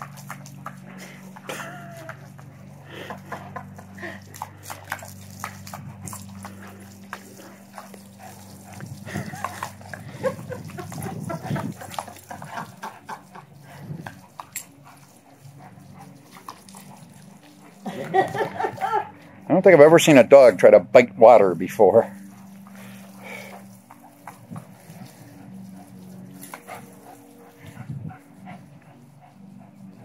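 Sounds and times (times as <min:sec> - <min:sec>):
dog grunting breaths: 0:00.0 - 0:19.5, 0:22.1 - 0:30.0
hose water spraying: 0:00.0 - 0:30.0.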